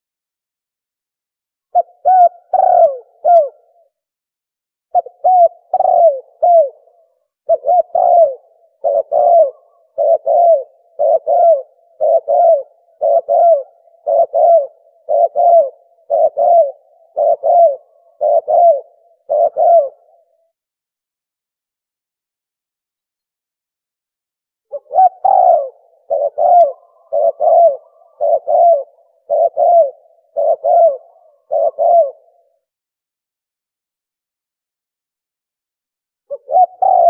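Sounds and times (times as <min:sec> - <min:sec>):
dove cooing: 0:01.7 - 0:04.0, 0:04.9 - 0:20.5, 0:24.7 - 0:32.7, 0:36.3 - 0:37.0.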